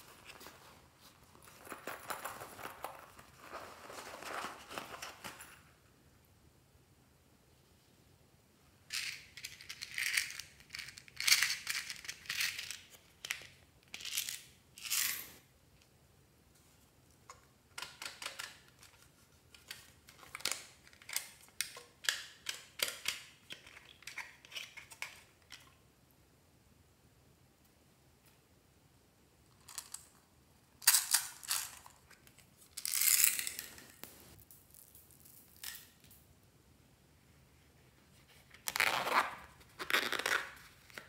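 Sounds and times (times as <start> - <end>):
plastic toys rustling and scraping: 0.0 - 5.7, 30.9 - 35.9
plastic pieces clicking together: 8.9 - 15.2, 17.7 - 19.0, 19.6 - 25.7.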